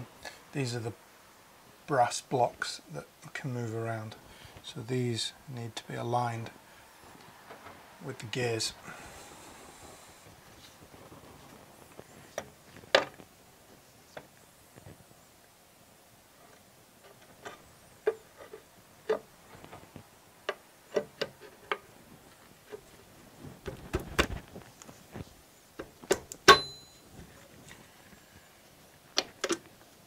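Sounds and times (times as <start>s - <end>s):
metal levers knocking and clicking: 25.8s - 26.9s
ringing metal clank: 26.5s - 27.1s.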